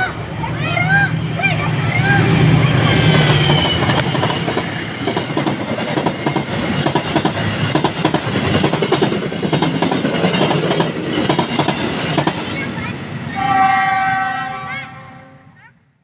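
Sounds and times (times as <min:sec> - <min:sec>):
diesel locomotive engine drone: 0:00.0 - 0:15.6
train wheels clattering over rail joints: 0:02.8 - 0:12.7.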